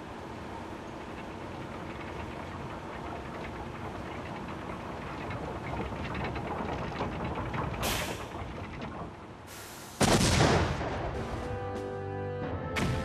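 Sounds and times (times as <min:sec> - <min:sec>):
loud explosion boom: 0:10.0 - 0:11.2.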